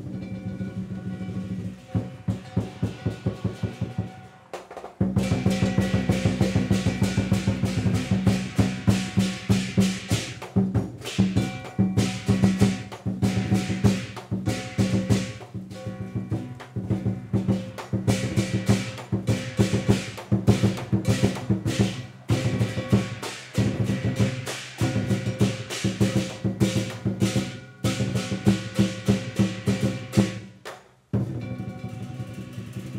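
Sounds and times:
ringing gong: 0.0 - 4.5, 11.4 - 20.0, 31.3 - 32.9
large drum beaten rapidly: 0.0 - 30.6, 31.2 - 32.9
crashing cymbals: 0.0 - 32.9.

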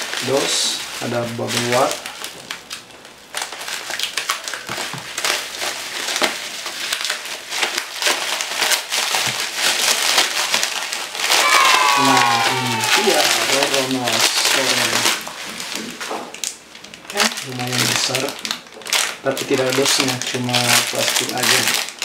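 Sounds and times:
plastic packaging crinkling: 0.0 - 22.0.

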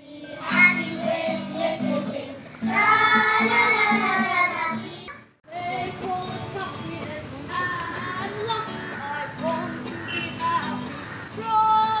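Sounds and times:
children singing: 0.0 - 5.2.

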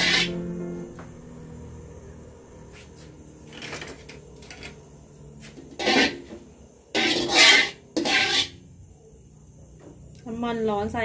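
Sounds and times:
metal spatula scraping wok: 0.0 - 0.4, 5.5 - 8.6.

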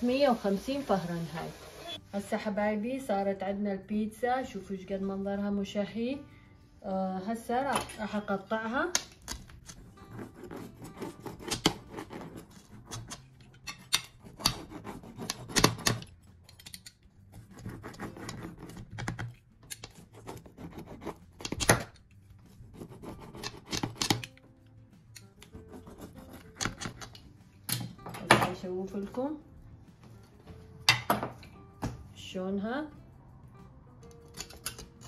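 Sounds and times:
blade cutting pizza crust: 9.7 - 13.3, 13.9 - 16.0, 17.4 - 18.9.

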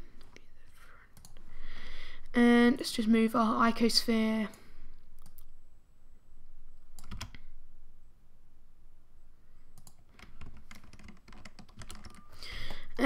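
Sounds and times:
keyboard and mouse clicks: 1.2 - 1.4, 4.5 - 5.5, 6.9 - 7.5, 9.8 - 12.9.

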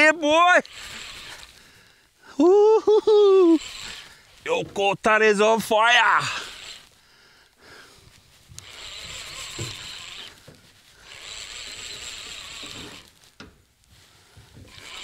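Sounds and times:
fishing reel buzzing: 0.0 - 1.7, 3.0 - 4.3, 6.0 - 7.0, 8.5 - 13.2, 14.6 - 15.0.

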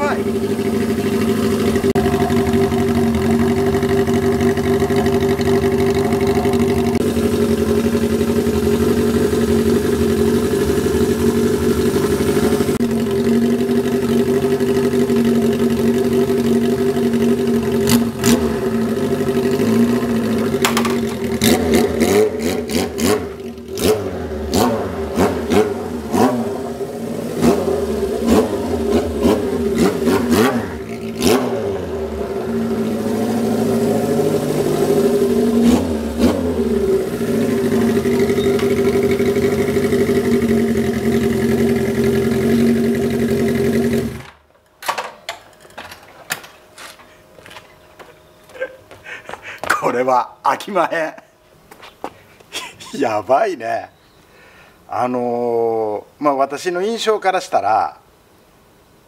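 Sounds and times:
motorcycle engine idling and revving: 0.0 - 44.5.

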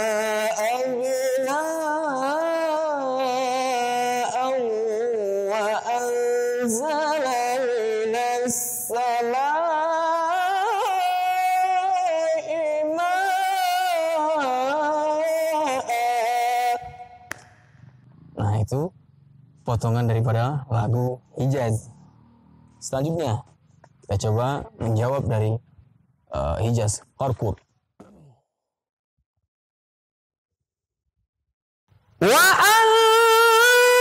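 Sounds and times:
man chanting melismatic recitation: 0.0 - 17.3, 32.2 - 34.0.

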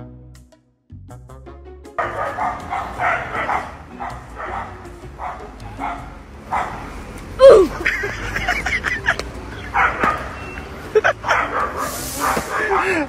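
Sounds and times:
dog barking: 2.0 - 6.9, 9.7 - 10.5, 11.2 - 13.0.

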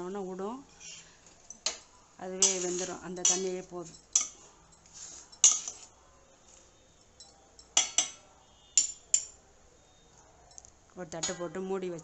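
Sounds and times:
spoon clinking against metal pot: 1.4 - 5.9, 7.0 - 9.4, 10.5 - 11.6.

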